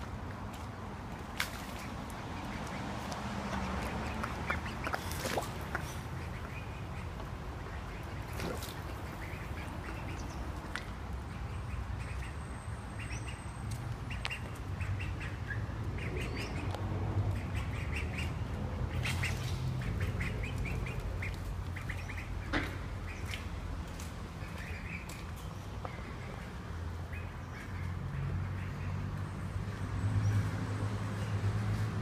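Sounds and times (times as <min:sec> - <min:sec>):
ducks quacking: 0:02.1 - 0:10.4.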